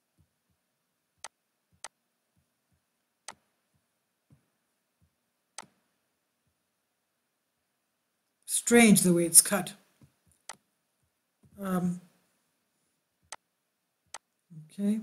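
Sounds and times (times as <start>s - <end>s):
computer mouse clicking: 3.3s - 3.5s.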